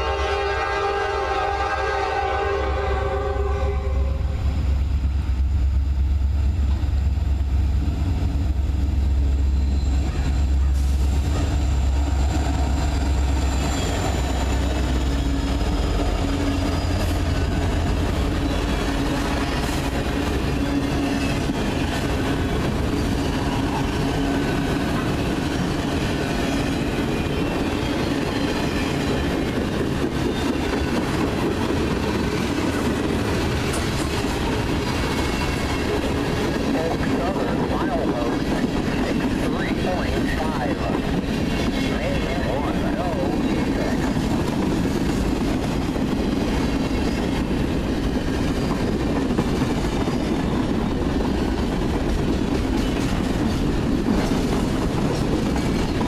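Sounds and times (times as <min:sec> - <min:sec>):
diesel locomotive rumble: 0:00.0 - 0:56.0
train wheels clattering: 0:09.4 - 0:40.2, 0:43.1 - 0:56.0.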